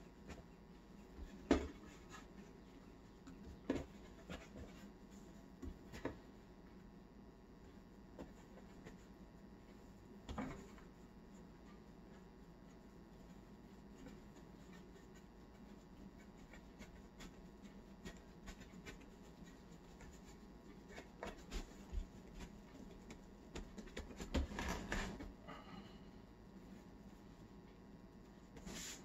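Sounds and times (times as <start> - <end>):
hands rolling bread dough: 0.0 - 29.0
soft taps and pats on dough: 0.1 - 6.9, 7.6 - 24.6.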